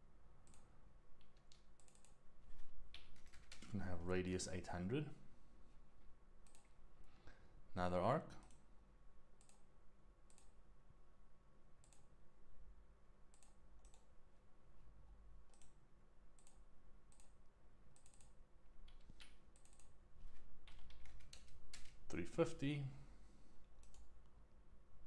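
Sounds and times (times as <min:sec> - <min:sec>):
faint electrical hum: 0:00.0 - 0:25.0
computer mouse clicking: 0:00.4 - 0:02.2, 0:06.4 - 0:06.8, 0:08.4 - 0:08.7, 0:09.4 - 0:09.7, 0:10.3 - 0:10.6, 0:11.8 - 0:12.1, 0:13.3 - 0:14.1, 0:15.5 - 0:22.0, 0:23.8 - 0:24.1.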